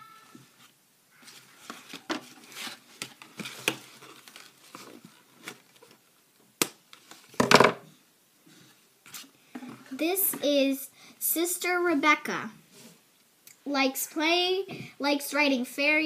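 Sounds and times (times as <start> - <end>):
packaging crinkling and rustling: 1.2 - 6.2.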